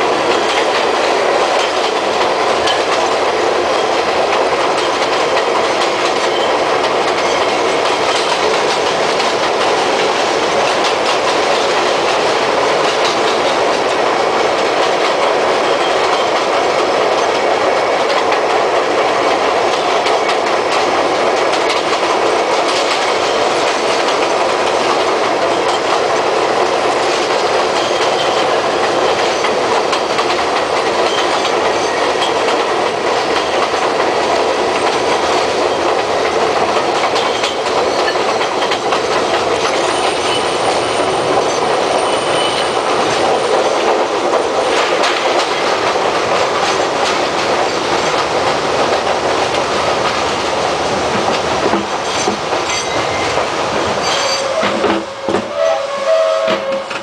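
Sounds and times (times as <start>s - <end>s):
clickety-clack over rail joints: 0.0s - 57.0s
train wheel and track noise: 0.0s - 57.0s
high wheel squeal: 39.7s - 43.0s, 54.0s - 57.0s.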